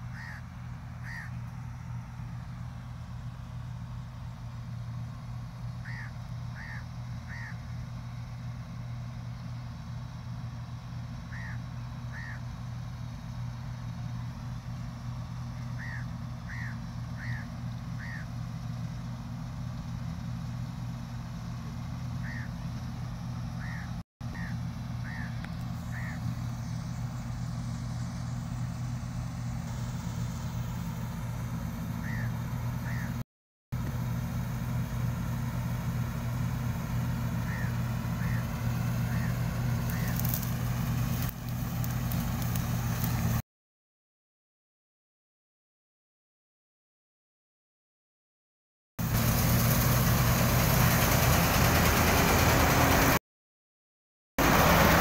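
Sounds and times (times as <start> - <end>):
combine harvester engine: 0.0 - 33.2, 33.8 - 43.4, 49.0 - 53.2, 54.4 - 55.0
crows cawing: 0.1 - 1.4, 5.8 - 7.7, 11.3 - 12.5, 15.7 - 18.4, 22.2 - 22.6, 23.6 - 26.3, 32.0 - 33.2, 37.4 - 40.4.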